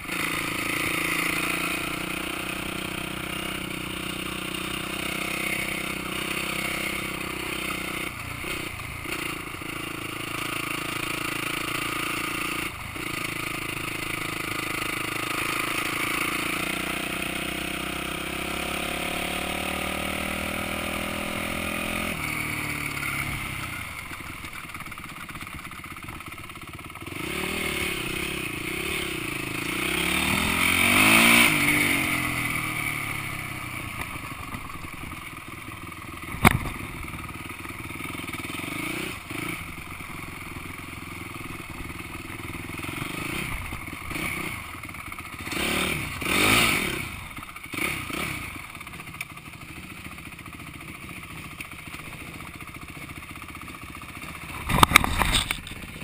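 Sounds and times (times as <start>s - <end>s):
dirt bike engine revving: 0.0s - 25.7s, 26.6s - 35.5s, 36.2s - 48.8s, 54.3s - 56.0s.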